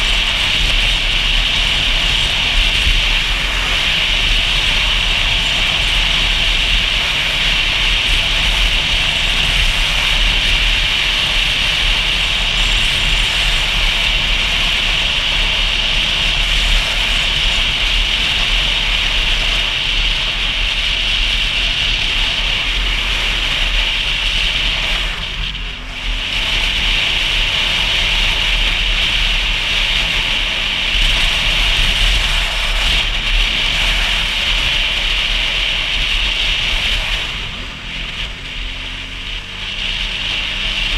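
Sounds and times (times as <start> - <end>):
motorcycle engine rumble: 0.0 - 40.9
wind and road noise: 0.0 - 40.9.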